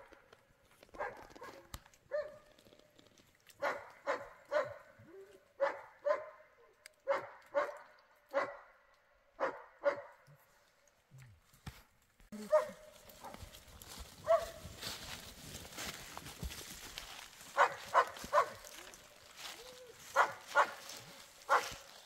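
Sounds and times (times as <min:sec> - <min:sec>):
dog barking: 0:01.0 - 0:02.5, 0:03.6 - 0:08.8, 0:09.4 - 0:10.3, 0:12.4 - 0:13.4, 0:14.2 - 0:14.6, 0:17.6 - 0:18.9, 0:20.1 - 0:21.9.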